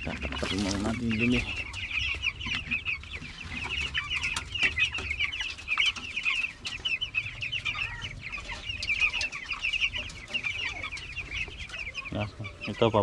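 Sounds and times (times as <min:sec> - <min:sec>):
chicks clucking and peeping: 0:00.0 - 0:13.0.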